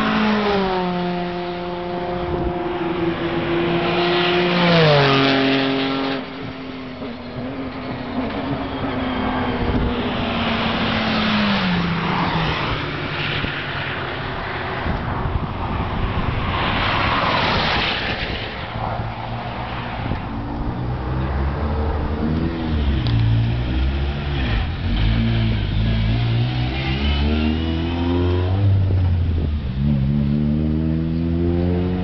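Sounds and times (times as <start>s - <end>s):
race cars passing at speed: 0.0s - 32.0s
car engine revving close by: 20.0s - 32.0s.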